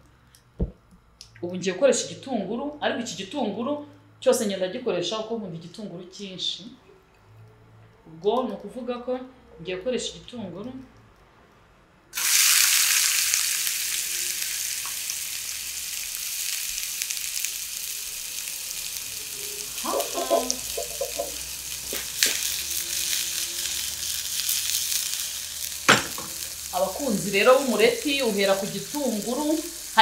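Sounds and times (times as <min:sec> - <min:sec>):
onion sizzling in hot oil: 0:12.1 - 0:30.0.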